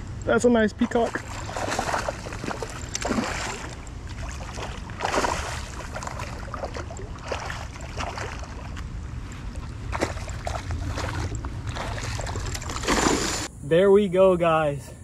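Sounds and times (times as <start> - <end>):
steady low rumble: 0.0 - 15.0
fish splashing at water surface: 1.1 - 8.9, 9.6 - 13.5.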